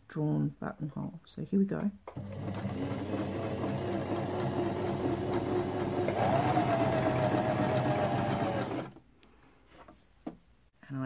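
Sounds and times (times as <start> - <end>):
sewing machine running: 2.1 - 9.0.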